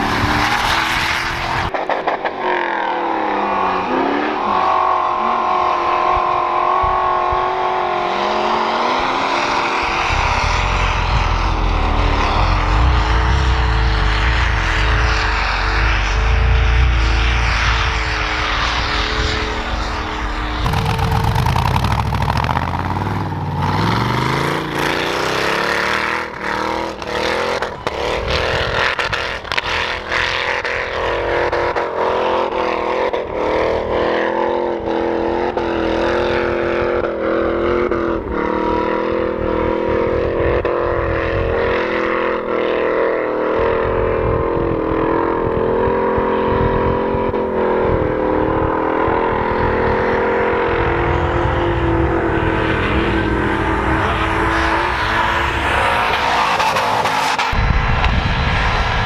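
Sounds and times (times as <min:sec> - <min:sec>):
engine revving hard: 0:00.0 - 0:20.0, 0:20.6 - 0:57.6
exhaust crackles: 0:00.0 - 0:30.2.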